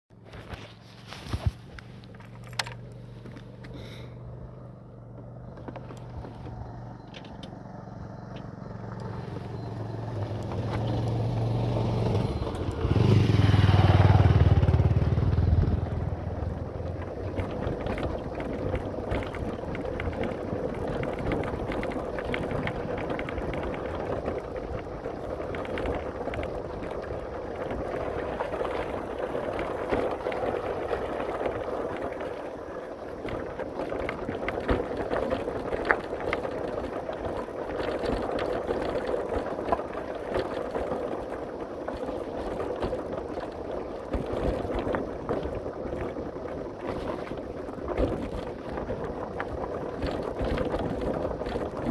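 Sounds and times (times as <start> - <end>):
motorcycle engine revving: 4.3 - 23.2.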